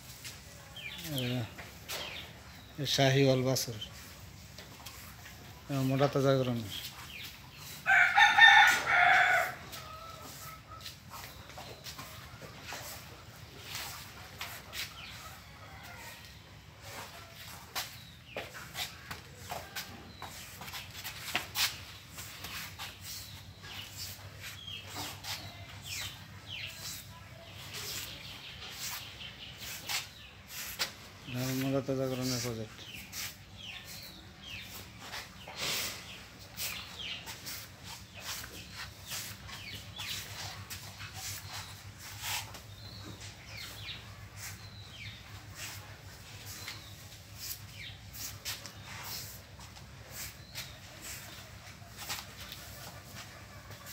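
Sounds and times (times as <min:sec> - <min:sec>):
small birds chirping: 0:00.0 - 0:53.9.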